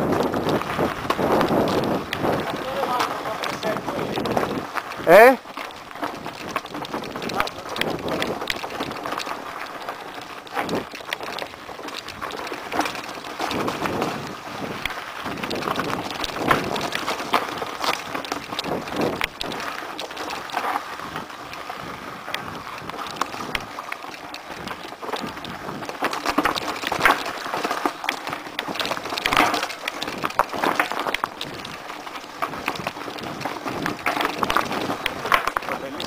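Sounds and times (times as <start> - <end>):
bike rattling over rocks: 0.0 - 36.0
tyres crunching over stones: 0.0 - 36.0.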